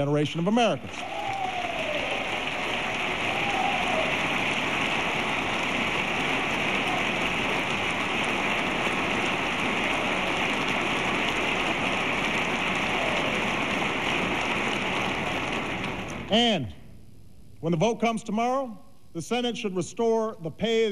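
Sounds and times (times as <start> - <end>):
audience applause: 0.6 - 16.3.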